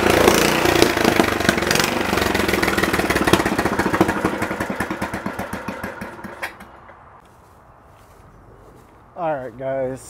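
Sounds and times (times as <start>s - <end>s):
small engine running: 0.0s - 6.8s.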